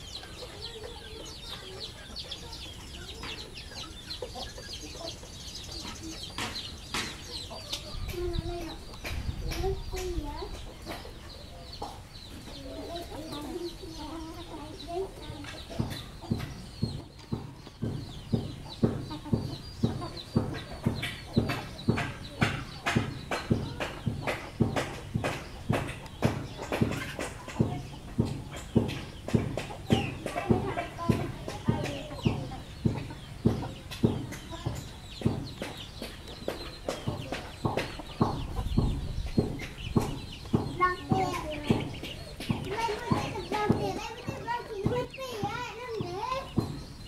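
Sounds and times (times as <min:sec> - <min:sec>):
chickens clucking and chirping: 0:00.0 - 0:47.0
sharp knocking: 0:15.7 - 0:47.0.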